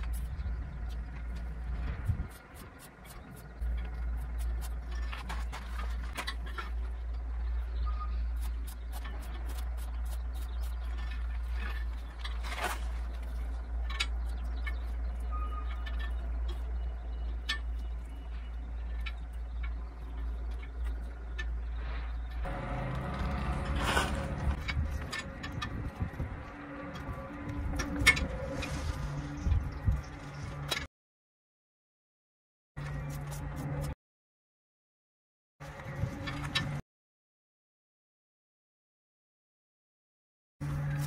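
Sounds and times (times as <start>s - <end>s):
steady low rumble: 0.0s - 30.9s.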